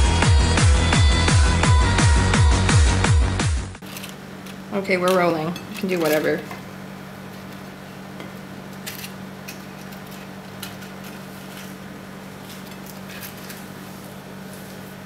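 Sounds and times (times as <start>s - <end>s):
steady low hum: 0.0s - 15.0s
fried paper crackling: 8.7s - 15.0s.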